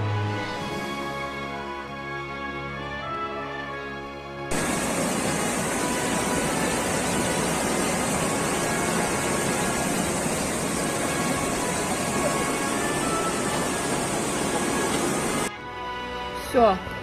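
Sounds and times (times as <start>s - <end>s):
floodwater rushing: 4.5s - 15.5s.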